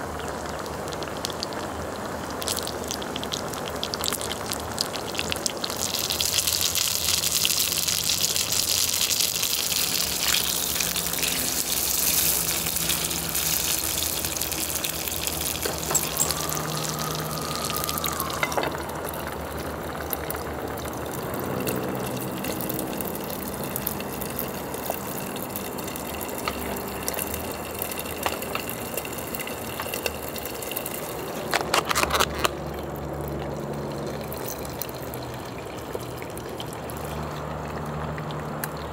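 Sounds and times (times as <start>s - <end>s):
meat sizzling on a grill: 0.0s - 31.8s
broth boiling and bubbling: 0.0s - 38.9s.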